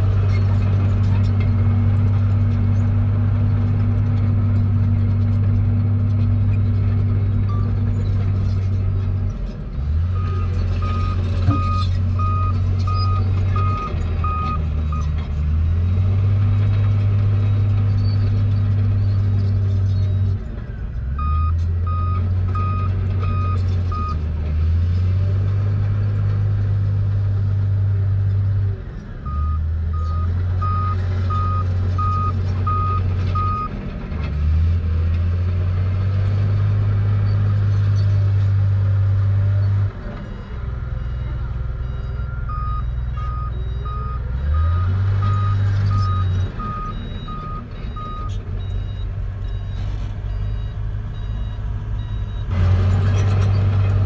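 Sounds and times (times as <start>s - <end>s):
bulldozer diesel engine: 0.0s - 54.0s
reversing alarm beeping: 41.0s - 52.5s.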